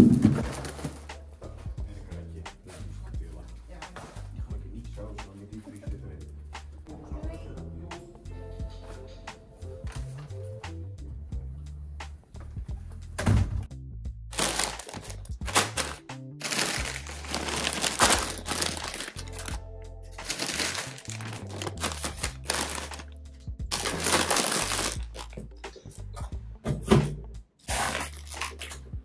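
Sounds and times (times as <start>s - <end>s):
background music with bass line: 0.0s - 29.0s
plastic crisp packets crinkling: 14.3s - 19.6s, 20.2s - 25.4s, 27.7s - 28.8s.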